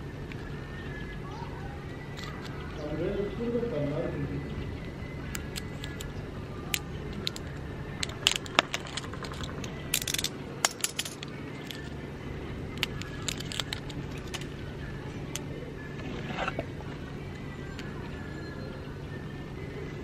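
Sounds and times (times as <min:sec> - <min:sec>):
batteries clinking in a hand: 0:05.3 - 0:06.1, 0:06.7 - 0:12.0, 0:12.7 - 0:14.6.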